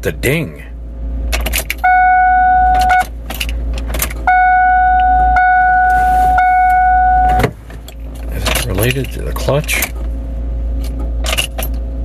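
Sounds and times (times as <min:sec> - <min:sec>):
car warning chime: 0:01.8 - 0:03.1, 0:04.3 - 0:07.5
keys jangling and clicking: 0:11.2 - 0:11.8.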